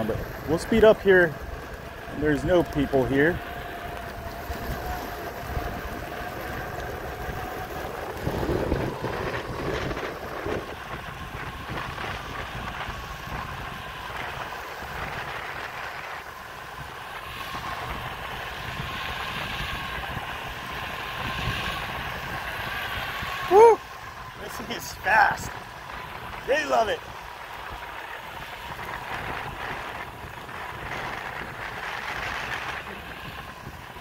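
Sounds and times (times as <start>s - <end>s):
electric skateboard motor whine: 0.0s - 34.0s
wind rumbling on microphone: 0.0s - 34.0s.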